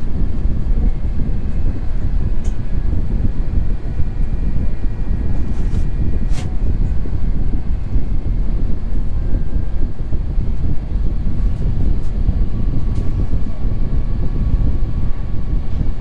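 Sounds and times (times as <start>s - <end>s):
airliner cabin rumble: 0.0s - 16.0s
faint steady whine: 0.0s - 16.0s.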